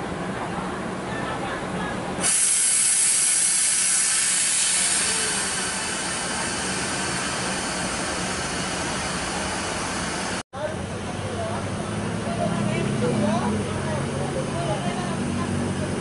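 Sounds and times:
compressed air hissing: 2.2 - 10.4.

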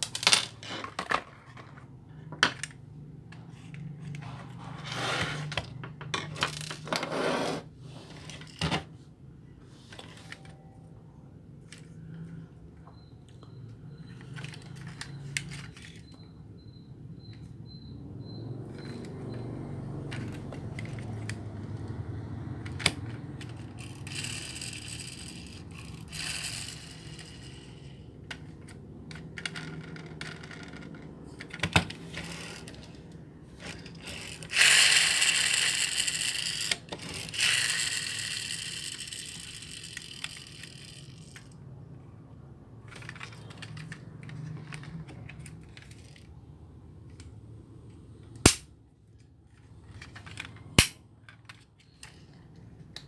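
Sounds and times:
toy trucks clicking and scraping: 2.5 - 8.9, 14.0 - 16.3, 18.6 - 41.8, 42.8 - 46.4, 47.0 - 53.0
toy trucks rolling on wood: 18.6 - 41.6, 42.8 - 46.4, 49.5 - 53.0.

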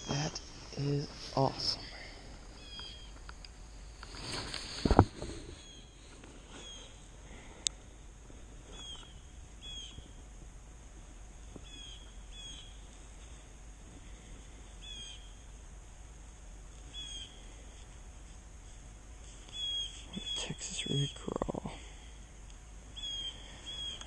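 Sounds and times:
bird chirping: 2.6 - 3.2, 6.6 - 7.0, 8.7 - 10.0, 11.6 - 12.8, 14.8 - 15.4, 16.9 - 17.4, 19.5 - 21.2, 23.0 - 24.0.

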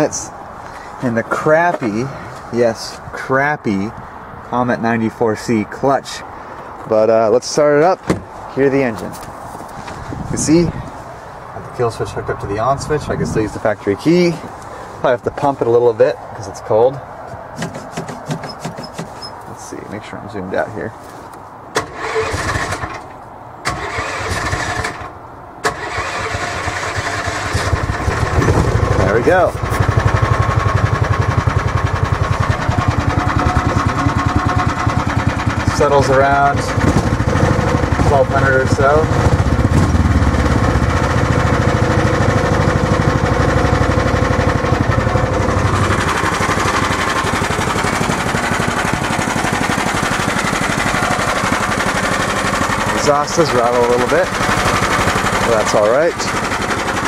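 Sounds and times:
small engine running: 21.8 - 23.0, 25.7 - 57.0
engine cranking on starter: 21.8 - 57.0
exhaust rattling: 23.7 - 57.0.

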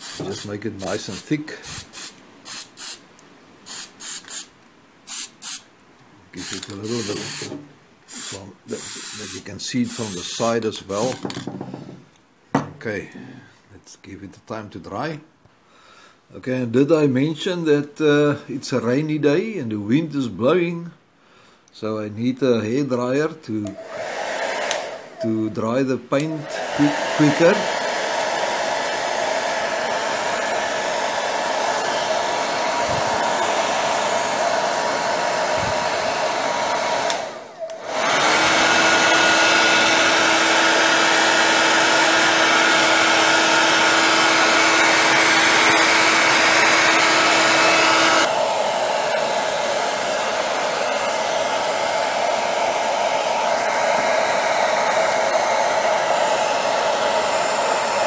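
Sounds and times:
hair dryer blowing: 0.0 - 3.0, 3.6 - 4.5, 5.1 - 5.6, 6.4 - 11.2, 23.6 - 25.6, 26.2 - 58.0.

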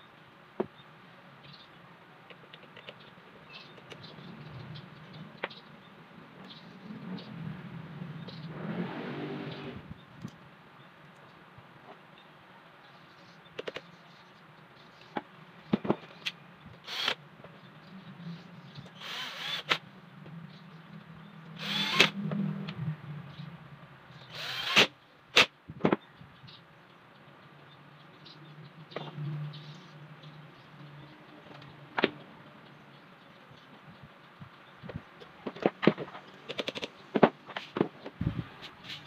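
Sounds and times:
cordless drill driving screws: 16.8 - 17.2, 19.0 - 19.8, 21.6 - 22.1, 24.3 - 24.9.

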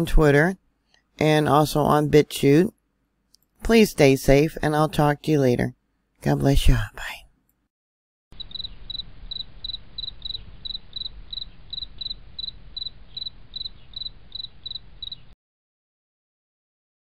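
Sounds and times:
insect chirping: 8.4 - 15.4.

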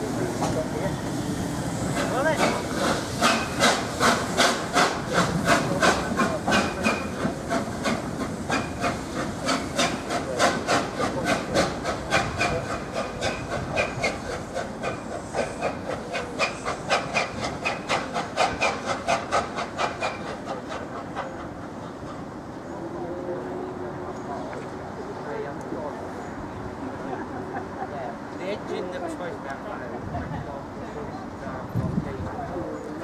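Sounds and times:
steam hissing: 0.0 - 22.4
steam locomotive chuffing: 0.0 - 23.8.

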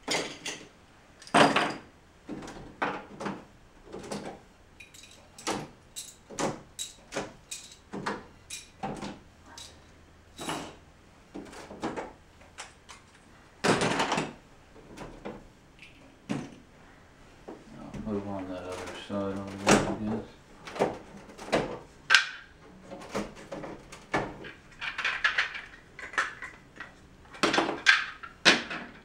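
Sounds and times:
plastic bricks clicking and clattering: 24.0 - 29.0.

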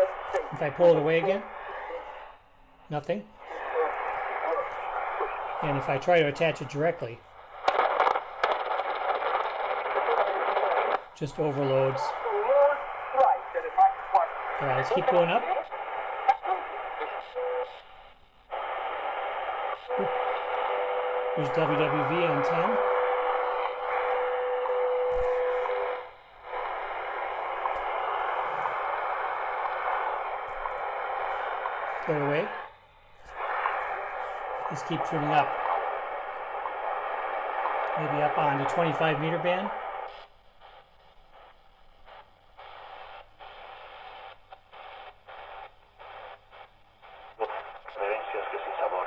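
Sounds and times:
radio static hiss: 0.0 - 49.0
radio time signal tone: 18.6 - 32.7.

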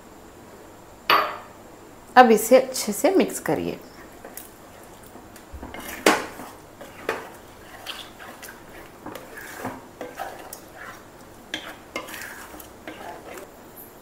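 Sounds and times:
spatula scraping metal pan: 5.6 - 13.5.

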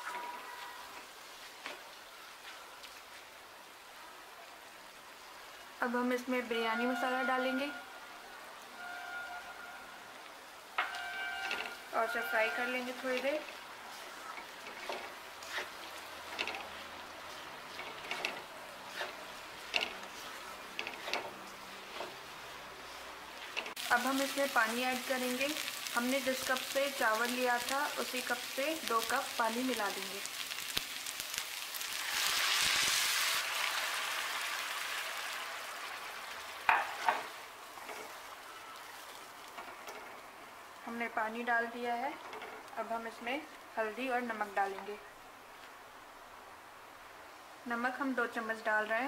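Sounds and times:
spatula scraping in wok: 10.8 - 29.1.

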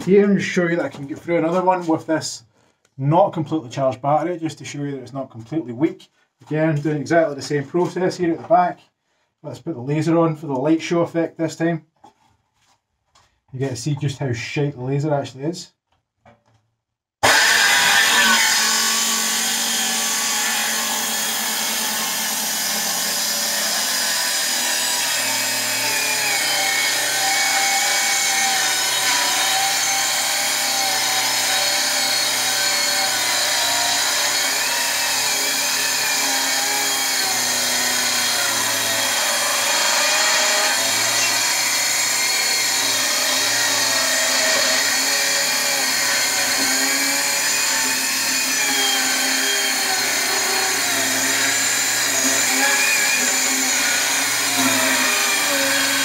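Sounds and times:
circular saw cutting wood: 17.2 - 56.0.

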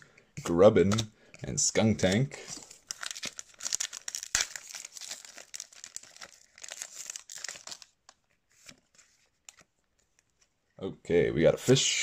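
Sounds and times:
foil wrapper crinkling and tearing: 2.6 - 8.7.

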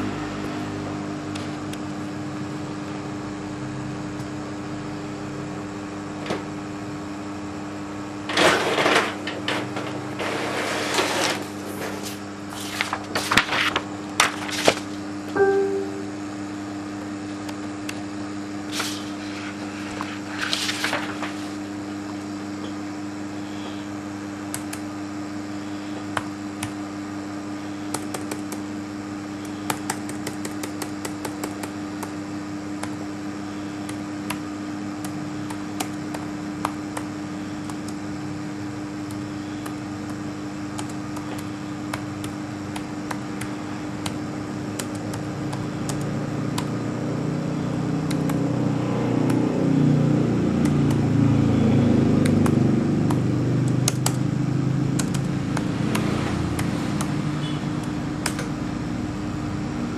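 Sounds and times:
small fan humming: 0.0 - 59.9
paper rustling: 11.0 - 15.0, 18.7 - 21.7
laptop keyboard typing: 27.8 - 28.7, 29.4 - 32.2, 35.0 - 38.0, 39.0 - 46.8, 48.0 - 48.4, 52.1 - 58.6.

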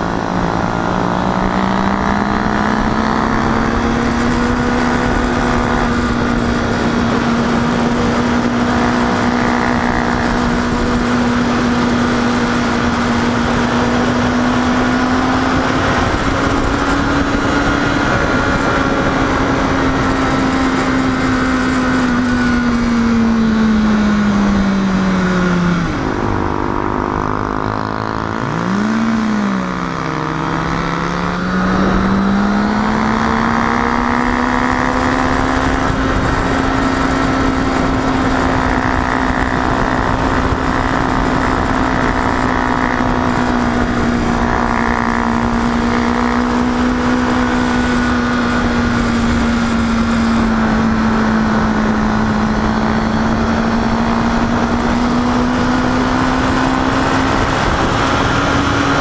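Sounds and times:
motorcycle engine running: 0.0 - 59.0
wind noise: 0.0 - 59.0.

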